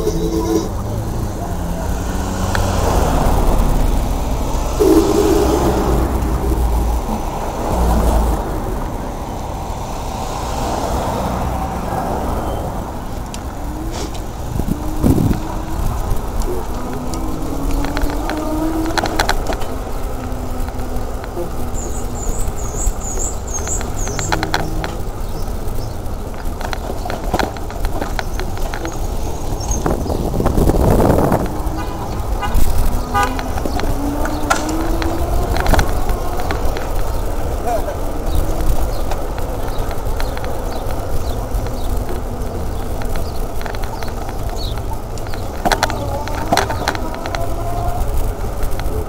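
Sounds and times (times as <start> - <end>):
wind and road rumble: 0.0 - 49.0
sharp rattles: 12.9 - 49.0.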